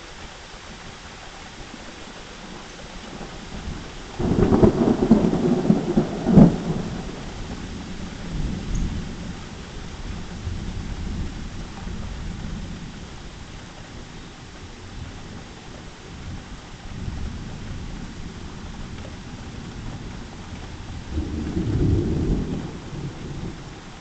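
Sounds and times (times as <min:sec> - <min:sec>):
thunder rumbling: 0:03.2 - 0:13.3, 0:16.2 - 0:24.0
sharp thunder crack: 0:04.2 - 0:07.2.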